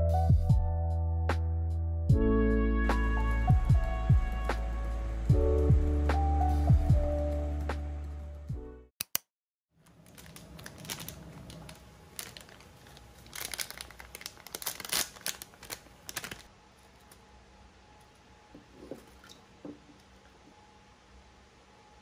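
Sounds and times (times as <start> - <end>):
crinkling and rustling: 9.8 - 17.2.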